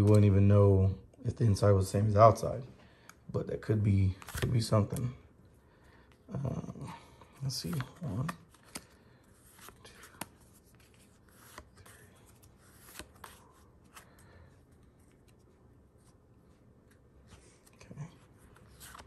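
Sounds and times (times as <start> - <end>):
trading cards flipping: 4.1 - 5.1, 7.5 - 16.2, 18.4 - 19.0.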